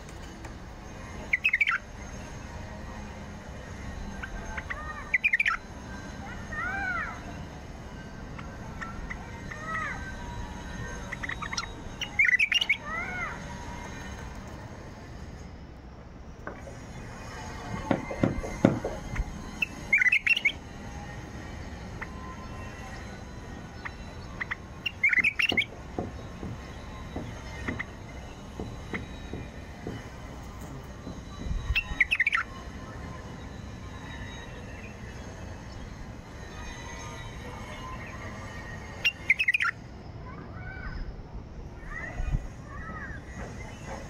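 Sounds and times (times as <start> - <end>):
bird chirping: 1.2 - 2.2, 4.2 - 5.6, 8.4 - 13.1, 17.9 - 20.6, 22.0 - 30.0, 31.3 - 32.6, 39.0 - 39.8
sharp knocks: 17.7 - 19.0, 25.4 - 27.9.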